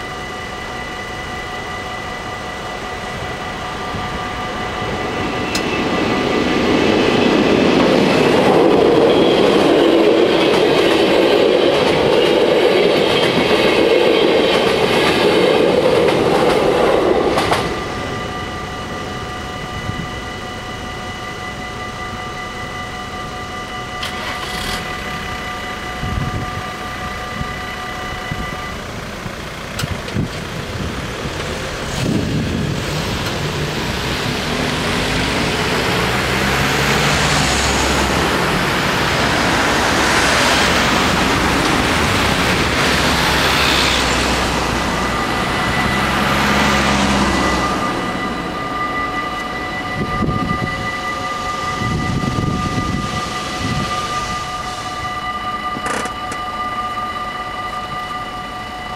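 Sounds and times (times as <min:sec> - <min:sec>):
crossing warning bells ringing: 0:00.0 - 0:58.9
train wheels clattering on rails: 0:05.0 - 0:18.1, 0:55.7 - 0:56.5.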